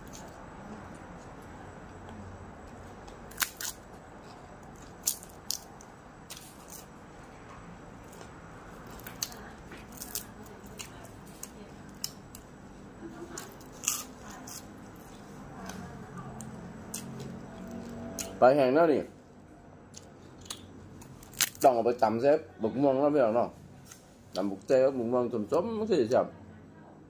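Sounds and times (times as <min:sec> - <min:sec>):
dried fish crunching: 0:03.0 - 0:03.9, 0:08.8 - 0:12.2, 0:20.3 - 0:21.7.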